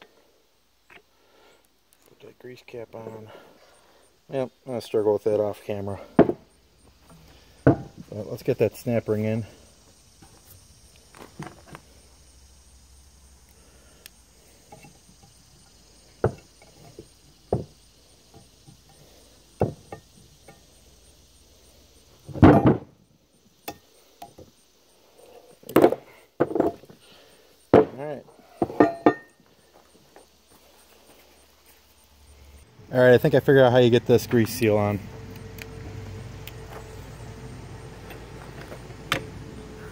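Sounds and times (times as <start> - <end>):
metal knocks and clanks: 28.6 - 29.3.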